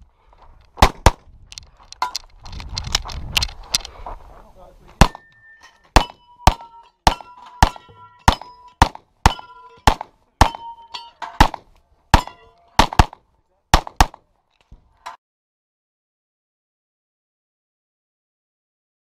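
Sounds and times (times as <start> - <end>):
rapid pistol shots: 0.8 - 1.2, 6.0 - 10.6, 11.4 - 14.2
steel target clanging: 5.0 - 11.6, 12.2 - 12.9.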